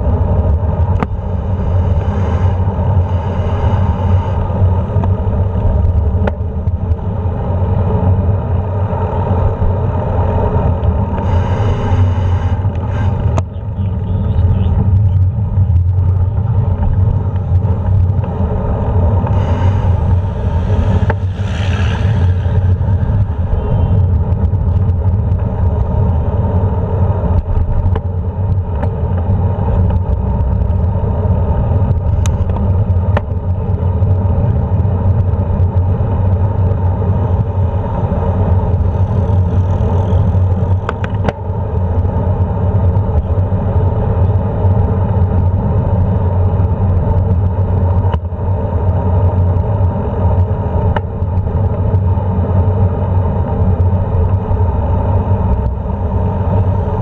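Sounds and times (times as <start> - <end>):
wind and road noise: 0.0 - 57.0
vehicle passing: 16.4 - 24.8.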